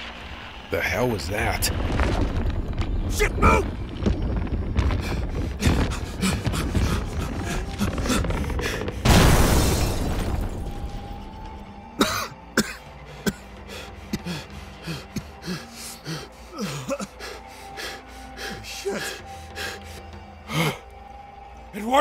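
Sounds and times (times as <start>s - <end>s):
branches crackling and snapping: 1.4s - 11.6s
loud crash: 9.0s - 11.0s
person coughing: 12.0s - 13.4s.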